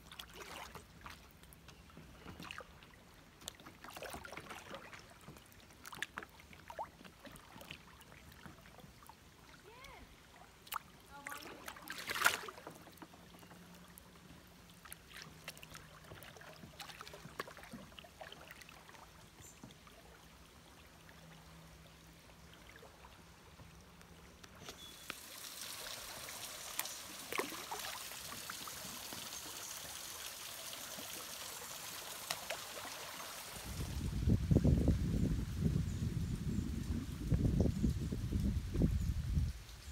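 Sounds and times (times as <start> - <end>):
kayak paddle splashing: 0.0 - 34.1
flowing creek water: 0.0 - 35.8.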